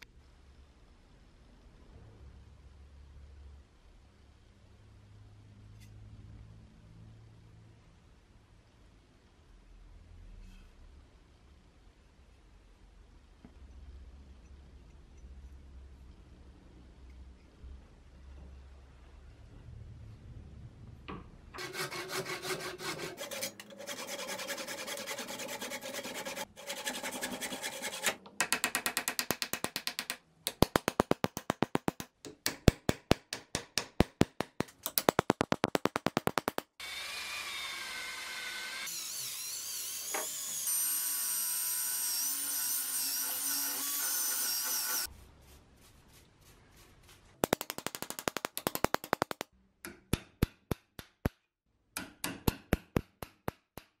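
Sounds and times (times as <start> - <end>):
hand saw cutting wood: 21.6 - 28.2, 36.8 - 45.1.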